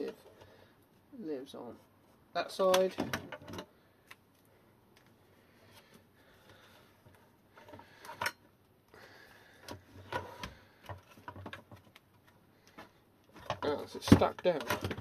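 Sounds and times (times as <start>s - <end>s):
sharp plastic clicks and knocks: 9.6s - 15.0s.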